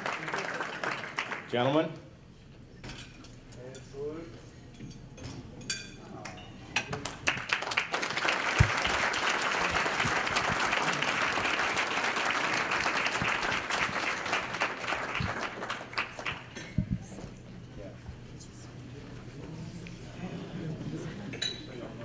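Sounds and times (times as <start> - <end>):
audience applauding: 0.0 - 1.5, 7.0 - 16.7.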